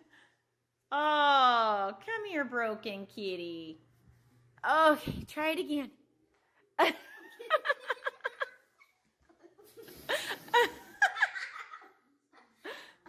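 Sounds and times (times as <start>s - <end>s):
young girls giggling: 6.8s - 13.0s.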